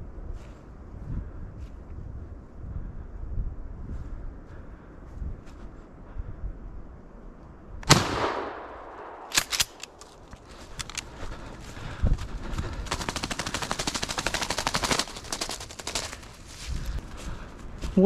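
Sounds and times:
shotgun blast with echo: 7.8s - 9.5s
sharp mechanical clicks: 9.0s - 11.1s
rattling in dry leaves: 12.6s - 17.0s.

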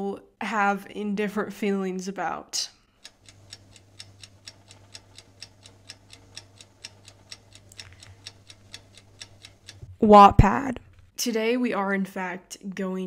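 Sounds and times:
clock ticking quickly: 3.0s - 10.7s.

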